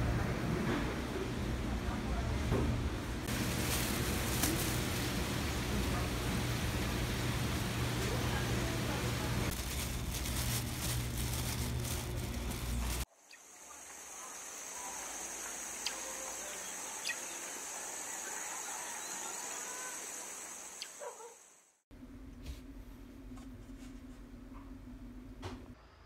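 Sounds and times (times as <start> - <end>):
loud background noise with hum: 0.0 - 13.1.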